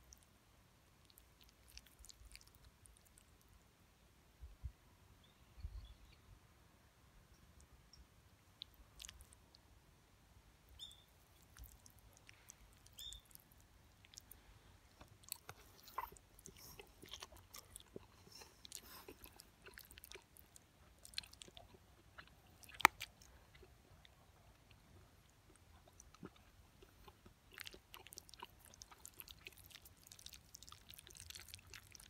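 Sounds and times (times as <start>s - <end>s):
chewing: 1.0s - 3.5s, 8.6s - 9.6s, 10.8s - 32.0s.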